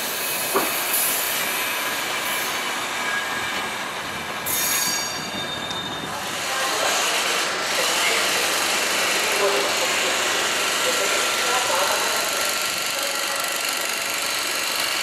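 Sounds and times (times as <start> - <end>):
train wheels squealing on rails: 0.0 - 11.6
rumbling hiss of rolling coaches: 0.0 - 11.7.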